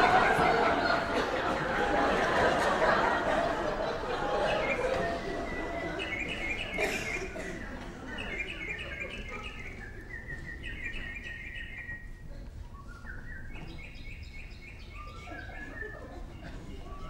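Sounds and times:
bird chirps and twitters: 4.4 - 17.0.

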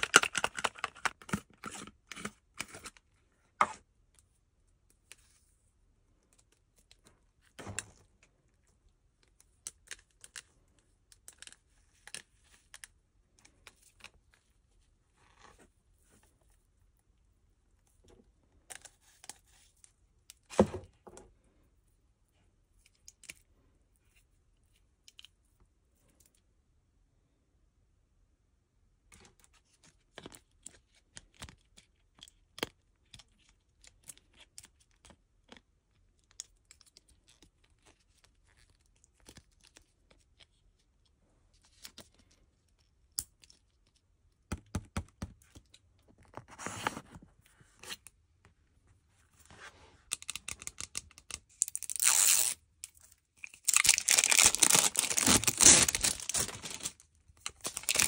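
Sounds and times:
packaging tearing and crinkling: 0.0 - 2.9, 51.5 - 52.6, 53.4 - 58.0.

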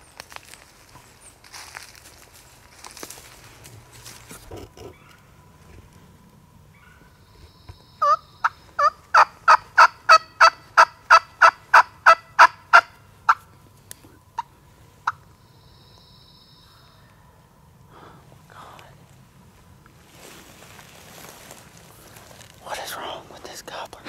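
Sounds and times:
turkey yelping: 8.0 - 13.4, 14.4 - 15.2.

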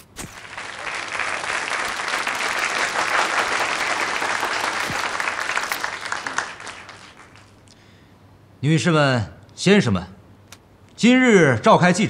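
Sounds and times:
crowd applauding: 0.3 - 7.8.

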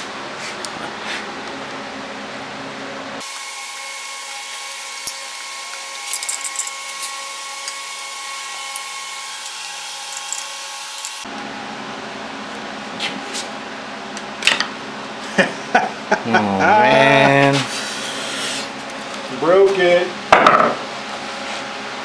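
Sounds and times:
screwdriver clicking and scraping metal: 4.9 - 7.8, 8.7 - 11.2
thin high hum: 16.1 - 19.0.

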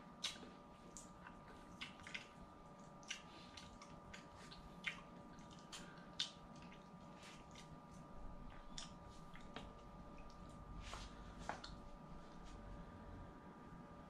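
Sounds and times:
faint steady hum: 0.0 - 14.0
eating clicks and wet smacks: 0.2 - 10.6, 11.4 - 11.8.

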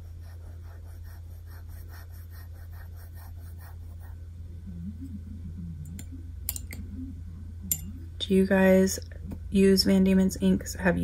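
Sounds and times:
ink swab scrubbing on paper: 0.0 - 4.1
low electrical hum: 0.0 - 11.0.

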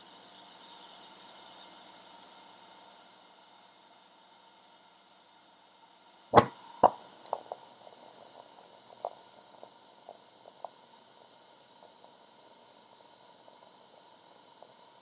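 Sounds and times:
sharp knocks: 6.4 - 7.4
faint clicks and taps: 6.4 - 7.6.

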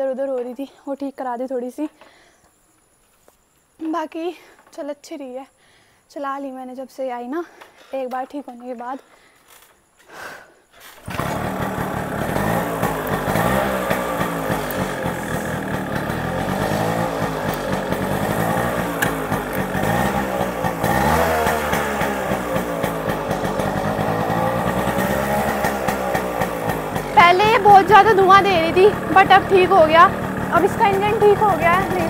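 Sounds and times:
motorcycle engine revving: 11.0 - 32.0.

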